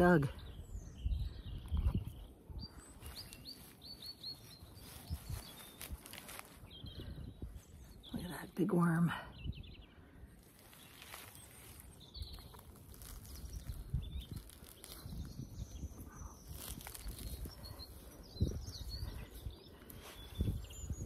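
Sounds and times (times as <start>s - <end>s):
wind buffeting microphone: 0.0s - 3.4s, 4.8s - 8.4s, 9.3s - 10.3s, 12.0s - 21.0s
faint bird chirps: 0.4s - 8.5s, 9.3s - 21.0s
rustling grass: 1.9s - 8.0s, 10.0s - 21.0s
soil and turf being handled: 2.8s - 6.7s, 10.4s - 15.5s, 16.3s - 18.2s.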